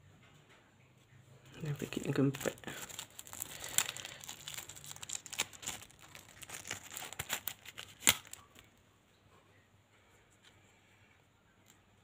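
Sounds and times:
sticker packet crinkling and tearing: 1.6s - 8.7s.

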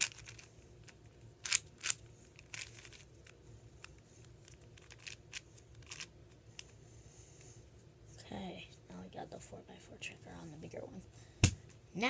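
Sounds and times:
plastic puzzle cube clicking: 1.4s - 3.0s, 4.4s - 6.7s.

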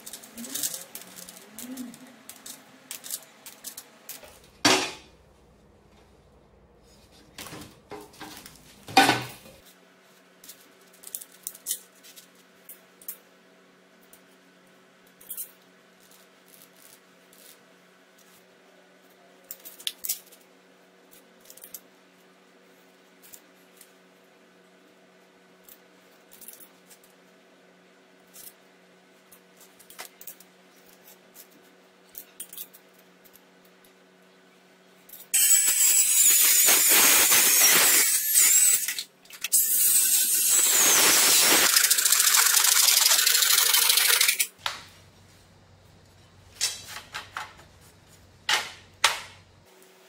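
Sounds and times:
circular saw cutting metal: 35.4s - 44.5s.

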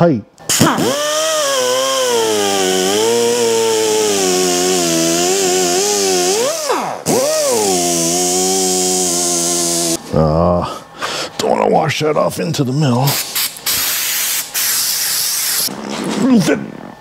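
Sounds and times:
power tool motor whining: 0.5s - 10.0s.

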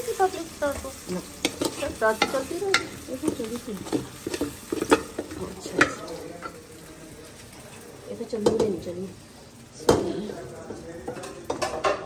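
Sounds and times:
faint frying sizzle: 0.0s - 12.0s
spoon scraping a metal pan: 0.7s - 6.6s.

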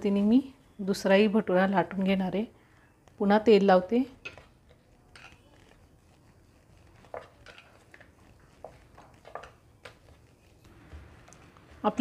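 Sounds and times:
rolling pin rolling dough: 3.0s - 12.0s.

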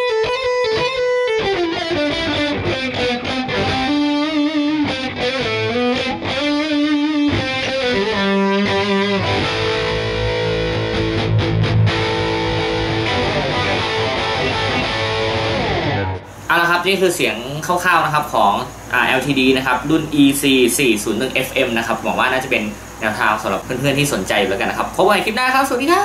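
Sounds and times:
distorted electric guitar: 0.0s - 16.6s.

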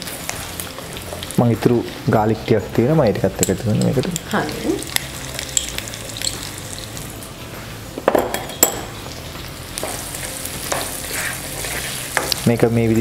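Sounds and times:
onion sizzling in oil: 0.0s - 13.0s
spatula stirring: 9.8s - 12.6s.

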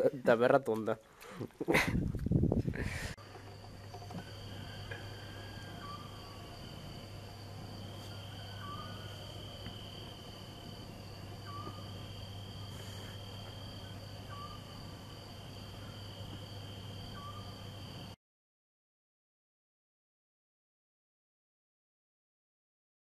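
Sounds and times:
low steady hum: 2.8s - 18.2s
high-pitched insect trilling: 3.5s - 18.0s.

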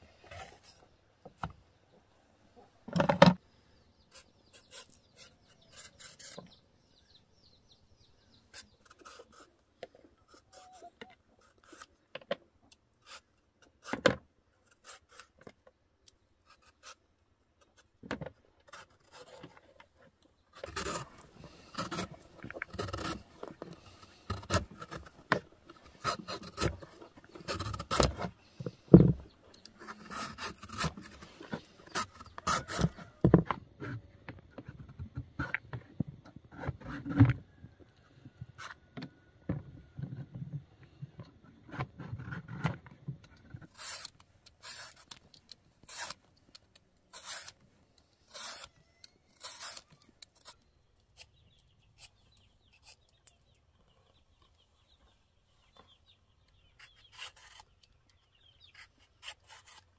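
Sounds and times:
peeler scraping coconut: 4.1s - 6.6s, 8.4s - 9.5s, 10.3s - 11.9s, 20.6s - 25.2s, 25.8s - 28.3s, 29.6s - 33.4s, 43.6s - 46.3s, 47.0s - 47.6s, 48.2s - 53.1s, 56.8s - 57.9s, 58.7s - 59.9s.

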